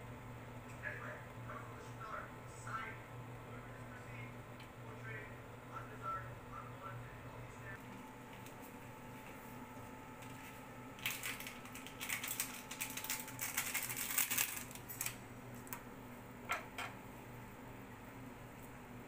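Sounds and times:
plastic sachet crinkling: 10.2s - 15.8s.

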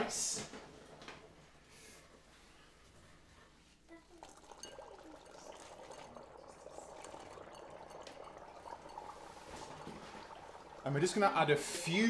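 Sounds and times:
dry ice bubbling in water: 3.9s - 12.0s.

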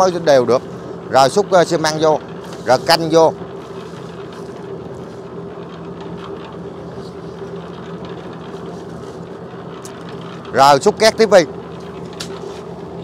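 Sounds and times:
concrete mixer humming: 0.0s - 13.0s.

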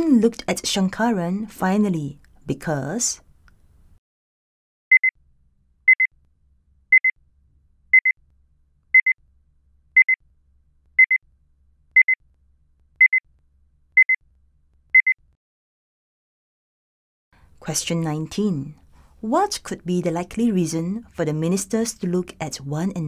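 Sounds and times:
electronic timer beeps: 4.9s - 5.1s, 5.9s - 6.1s, 6.9s - 7.2s, 7.9s - 8.2s, 9.0s - 9.2s, 10.0s - 10.2s, 11.0s - 11.2s, 12.0s - 12.2s, 13.0s - 13.2s, 14.0s - 14.2s, 15.0s - 15.2s.

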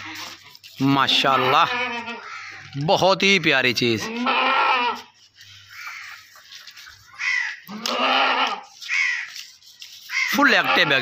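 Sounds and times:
goat bleating: 0.0s - 2.8s, 3.4s - 6.2s, 7.2s - 9.3s, 10.1s - 11.0s.

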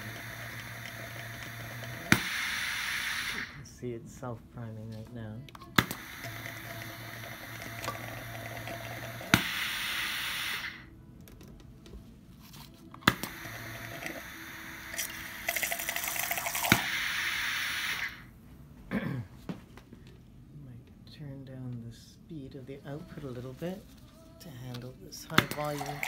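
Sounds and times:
water and air hissing and spurting: 1.6s - 3.6s, 9.1s - 10.8s, 13.2s - 18.3s.

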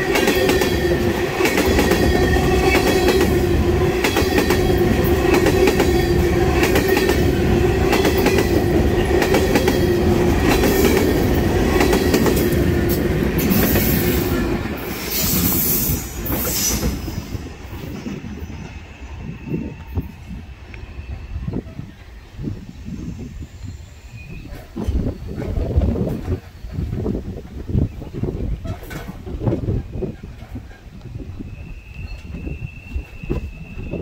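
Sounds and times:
train wheels rumbling: 0.0s - 34.0s
wheels clicking over rail joints: 24.8s - 31.2s
wheel squeal: 30.6s - 34.0s.

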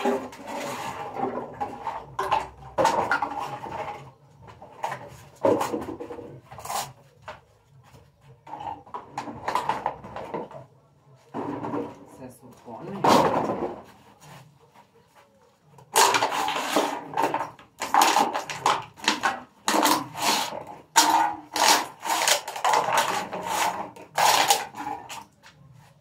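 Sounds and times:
recyclables rustling and clattering: 0.0s - 26.0s.

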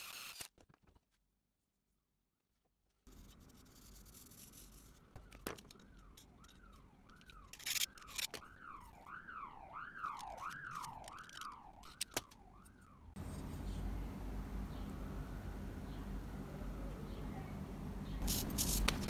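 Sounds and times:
siren wailing: 5.2s - 13.2s.

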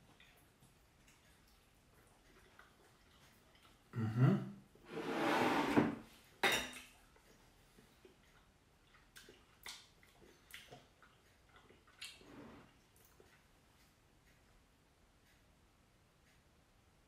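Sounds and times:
bowl scraping across wooden table: 4.8s - 6.0s
tableware clattering: 4.9s - 6.8s
cutlery clinking on a plate: 6.4s - 7.0s.

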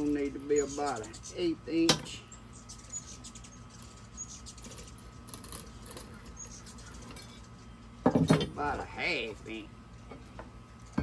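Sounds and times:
faint bird chirps: 0.0s - 8.0s.

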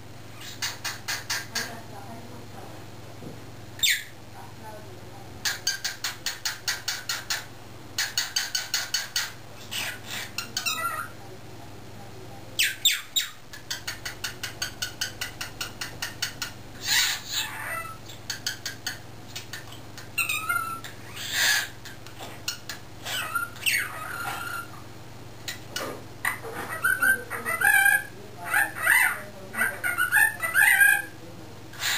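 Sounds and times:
cockatiel chirping: 3.8s - 4.1s, 8.0s - 11.1s, 12.6s - 21.7s, 22.5s - 24.8s, 26.2s - 31.1s.

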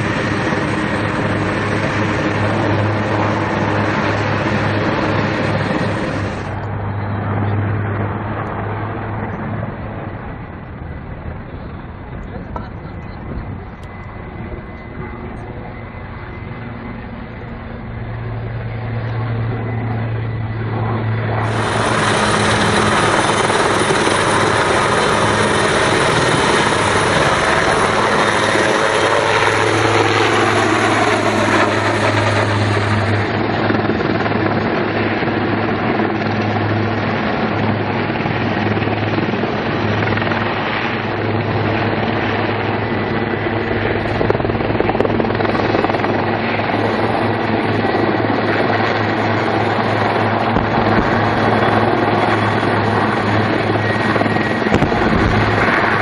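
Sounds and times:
helicopter rotors and engines: 0.0s - 56.0s
whine dropping in pitch: 12.2s - 33.4s, 50.0s - 56.0s
low hum: 49.6s - 56.0s.

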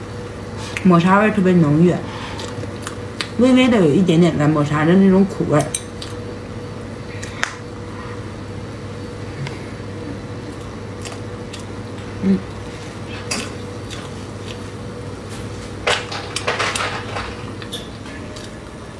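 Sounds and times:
steady low hum: 0.0s - 18.9s
quiet eating sounds: 0.2s - 18.9s
person humming mm: 12.2s - 13.3s.

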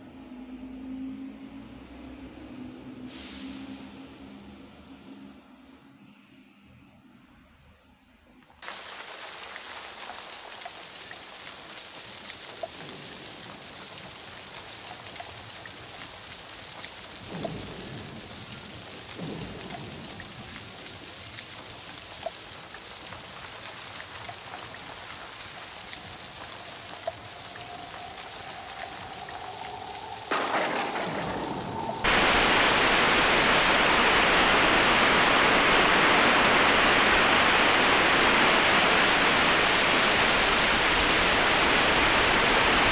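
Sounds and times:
low rumbles: 8.6s - 34.2s
rush of water: 8.6s - 42.9s
steady rain falling: 8.6s - 42.9s.

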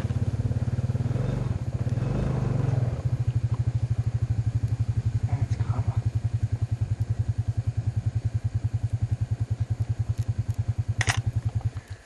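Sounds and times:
small engine idling: 0.0s - 12.0s
sharp click: 11.0s - 11.9s.

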